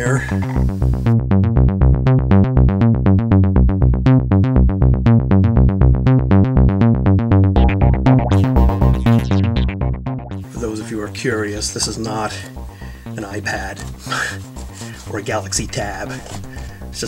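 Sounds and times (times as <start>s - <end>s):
steady bass line: 0.0s - 17.0s
fast stream of notes: 7.6s - 12.4s.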